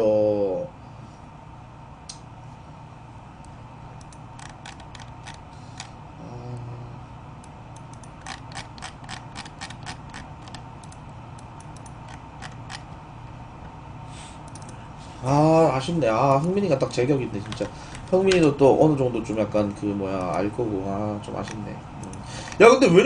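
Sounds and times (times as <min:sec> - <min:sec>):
steady low hum: 0:00.0 - 0:23.0
keyboard typing: 0:04.0 - 0:05.9, 0:07.7 - 0:13.0.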